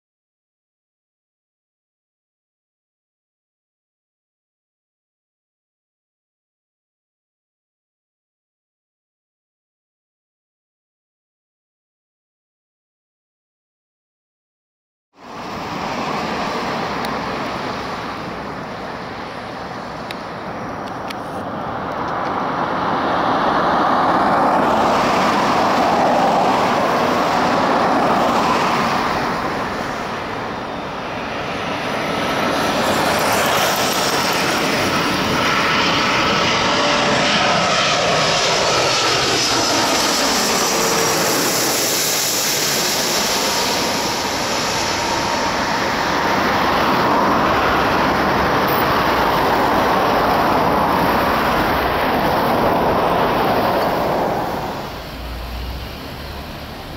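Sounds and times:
airliner passing low overhead: 15.2s - 56.9s.

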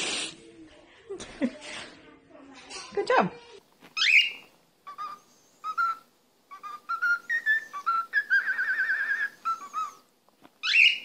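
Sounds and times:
cockatiel whistling and trilling: 4.0s - 11.0s.

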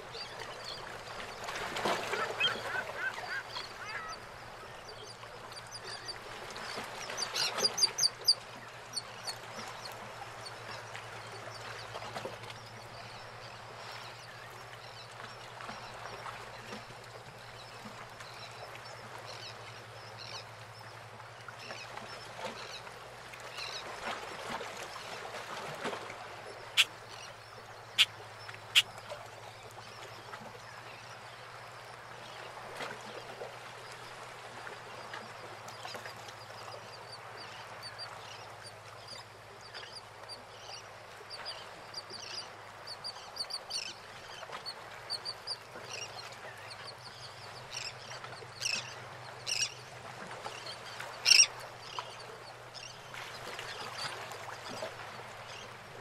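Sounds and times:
water lapping around boats: 0.0s - 56.0s.

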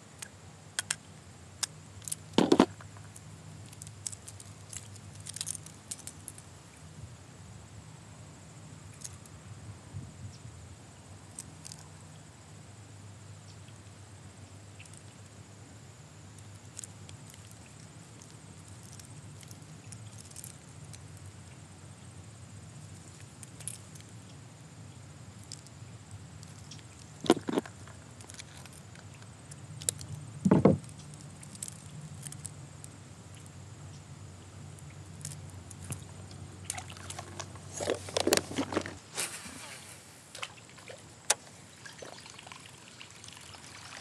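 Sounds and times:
faint low hum: 0.0s - 44.0s
fishing tackle clicks and rustles: 0.2s - 6.9s, 8.9s - 9.4s, 11.3s - 12.0s, 14.8s - 15.3s, 16.3s - 21.4s, 22.8s - 24.4s, 25.3s - 33.6s, 34.7s - 42.1s.

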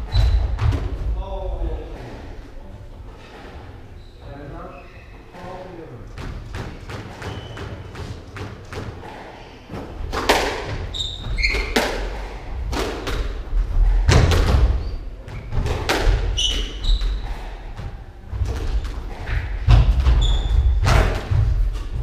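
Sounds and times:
shoes squeaking on wooden floor: 3.1s - 5.7s, 6.7s - 8.4s, 10.8s - 12.2s, 13.7s - 22.0s
squash ball cracking off rackets: 9.7s - 13.5s, 14.1s - 17.1s
heavy footfalls: 17.7s - 22.0s.

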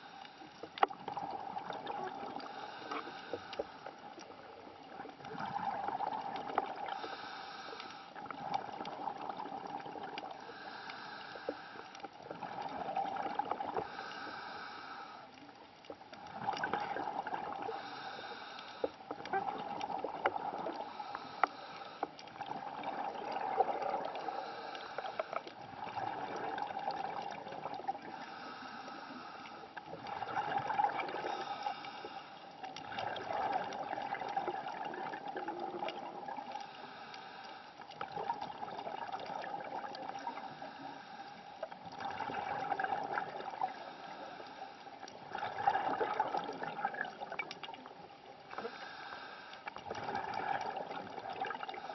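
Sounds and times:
bubbles gurgling underwater: 0.8s - 2.6s, 4.4s - 7.0s, 8.2s - 10.4s, 12.3s - 14.0s, 16.2s - 17.9s, 19.2s - 21.0s, 22.3s - 24.4s, 25.6s - 28.1s, 29.9s - 31.6s, 32.8s - 36.6s, 38.0s - 40.4s, 41.9s - 43.8s, 45.0s - 48.2s, 49.8s - 51.9s
diver breathing through regulator: 2.3s - 4.0s, 6.8s - 8.5s, 10.3s - 12.1s, 13.7s - 15.4s, 17.6s - 19.3s, 20.3s - 22.4s, 23.7s - 25.6s, 28.0s - 29.8s, 30.9s - 32.6s, 35.4s - 38.0s, 40.0s - 41.8s, 43.6s - 45.0s, 48.5s - 50.2s.

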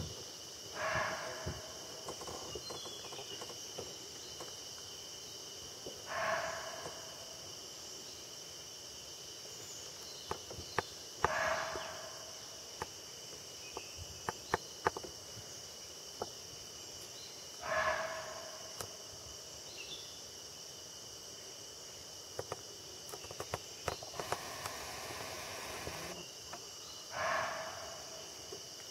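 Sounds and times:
high insect drone: 0.0s - 28.9s
deer alarm bark: 0.8s - 1.6s, 6.1s - 6.9s, 11.2s - 12.1s, 17.6s - 18.5s, 27.2s - 28.0s.

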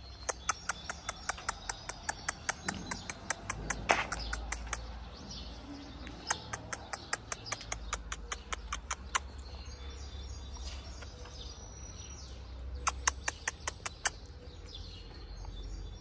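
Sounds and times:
sharp mouth clicks: 0.1s - 5.1s, 6.0s - 9.5s, 12.8s - 14.4s.

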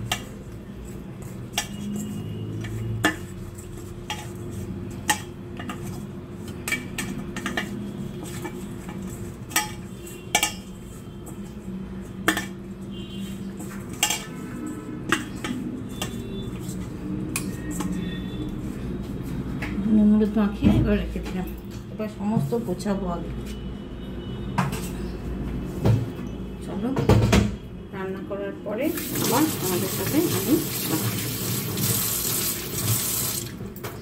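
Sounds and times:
prawns clinking in steel bowl: 28.9s - 33.5s.

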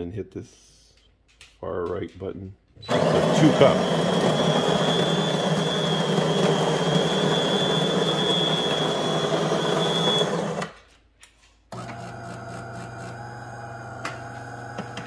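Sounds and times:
coffee grinder grinding beans: 2.9s - 10.8s, 11.8s - 15.0s.

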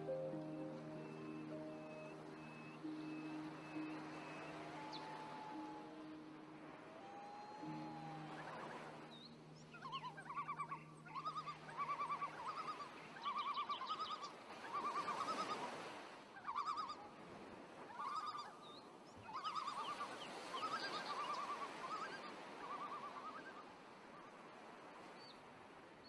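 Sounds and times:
trilled animal calls: 9.7s - 15.6s.

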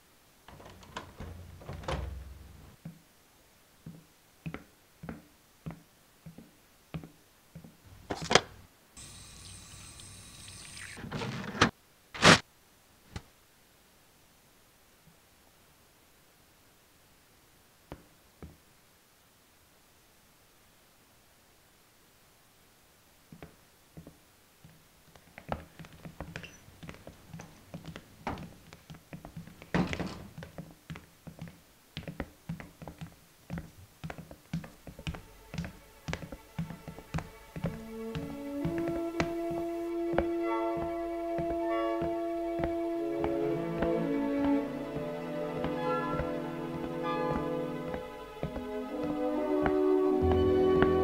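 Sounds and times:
footsteps on hard floor: 0.5s - 3.0s, 23.4s - 51.0s
paper towel ripping: 12.2s - 12.4s.

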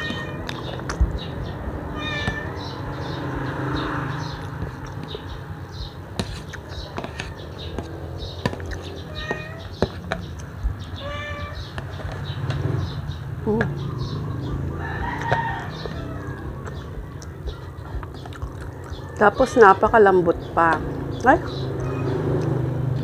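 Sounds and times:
cat meowing: 0.0s - 0.7s, 1.9s - 2.9s, 9.0s - 9.8s, 10.9s - 11.8s, 21.8s - 22.2s.

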